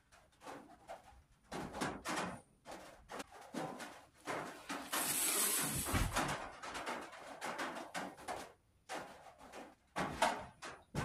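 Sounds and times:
mesh tape rustling and scraping: 2.6s - 10.0s.

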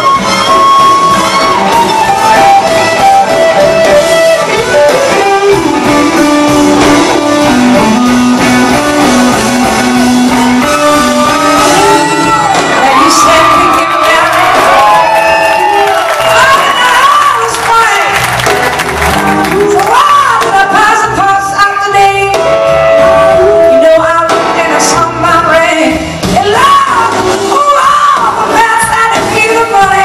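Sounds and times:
electric guitar bending notes: 0.0s - 13.9s, 21.9s - 25.4s
live blues-rock band: 0.0s - 30.0s.

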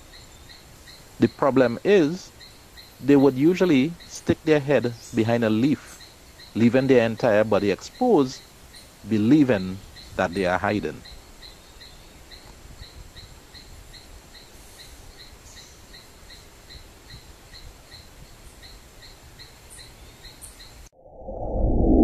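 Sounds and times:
steady outdoor hiss: 0.0s - 20.9s
insect chirping: 0.0s - 21.5s.

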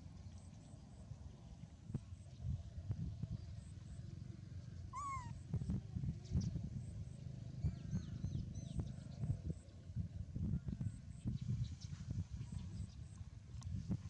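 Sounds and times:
baby monkey squeaky calls: 4.9s - 5.4s.

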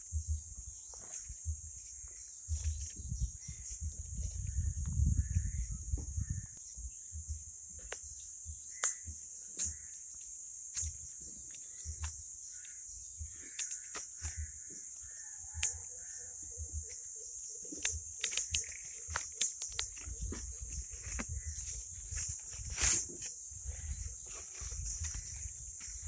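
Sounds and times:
faint bird calls: 0.0s - 26.0s
sharp clicks: 10.7s - 14.5s, 17.7s - 23.0s.

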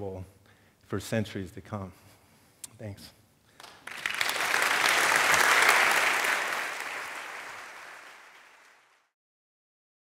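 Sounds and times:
audience applauding: 3.6s - 9.1s.

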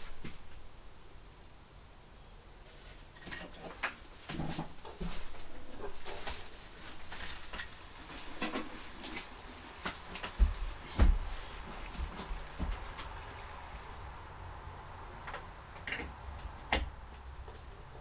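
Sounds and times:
rustling of objects being handled: 0.0s - 0.7s, 2.6s - 14.1s.

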